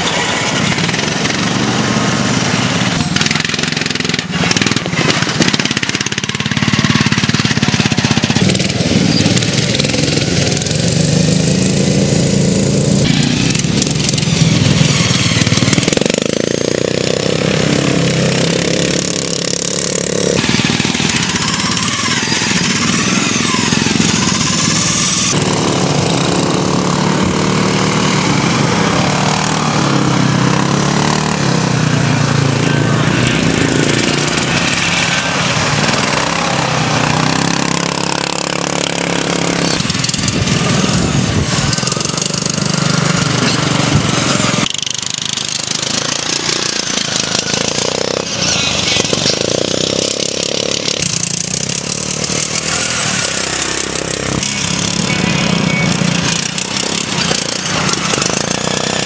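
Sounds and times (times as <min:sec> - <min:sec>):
ride-on lawn mower engines racing: 0:00.0 - 0:59.0.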